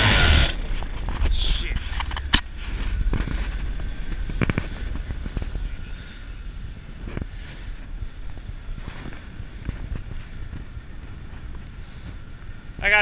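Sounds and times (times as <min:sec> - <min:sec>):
two-stroke engine popping and sputtering: 0:00.0 - 0:12.8
wind rumble on microphone: 0:00.0 - 0:13.0.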